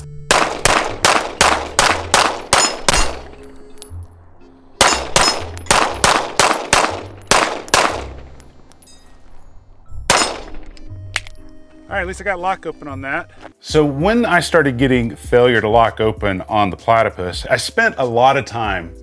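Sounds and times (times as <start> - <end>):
rapid pistol shots: 0.3 - 3.3, 4.8 - 8.2, 10.1 - 10.6.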